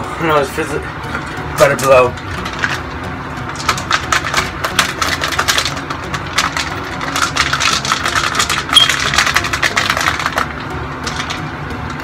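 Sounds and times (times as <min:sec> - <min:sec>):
plastic bottle being shaken: 0:03.5 - 0:11.4.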